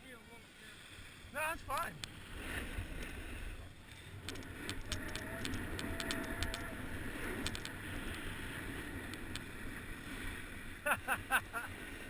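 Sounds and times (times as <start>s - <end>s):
skis scraping over snow: 0.6s - 10.8s
wind rumbling on microphone: 1.6s - 10.9s
faint sharp ticks: 1.7s - 2.2s, 3.9s - 8.3s, 9.0s - 9.5s.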